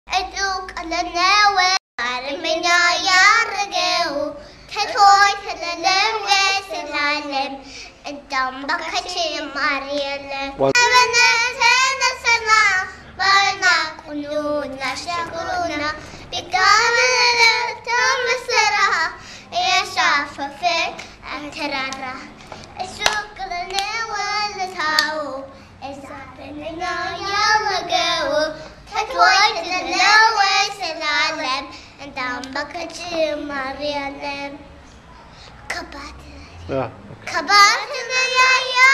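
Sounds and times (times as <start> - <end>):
girls singing a hymn: 0.1 - 36.4, 37.2 - 38.9
hand claps: 21.8 - 24.0, 24.7 - 25.2.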